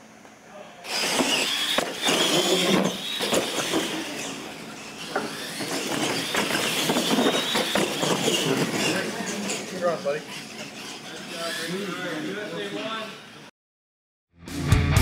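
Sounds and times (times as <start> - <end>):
electric motors whining: 0.8 - 13.5
tyres rumbling on concrete: 0.9 - 11.5
toy trucks knocking on ramps: 5.1 - 9.6.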